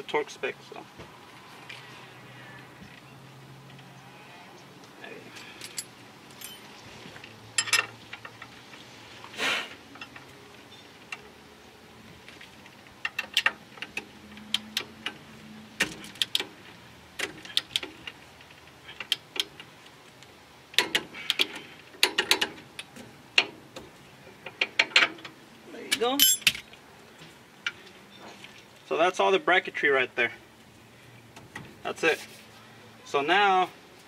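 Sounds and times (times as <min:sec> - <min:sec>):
metal tool clinks: 0:05.7 - 0:06.7, 0:26.2 - 0:26.5.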